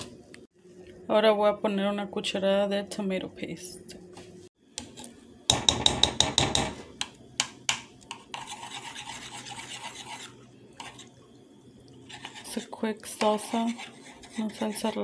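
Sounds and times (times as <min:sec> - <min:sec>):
stirring through liquid: 0:08.0 - 0:15.0
metal spoon scraping frying pan: 0:08.1 - 0:11.1, 0:12.1 - 0:15.0.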